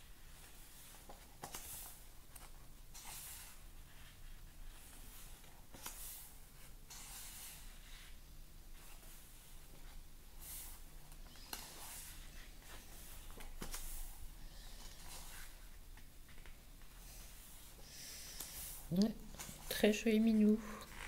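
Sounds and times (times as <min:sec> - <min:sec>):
paper pages flipping: 0:00.4 - 0:06.2, 0:11.4 - 0:14.2.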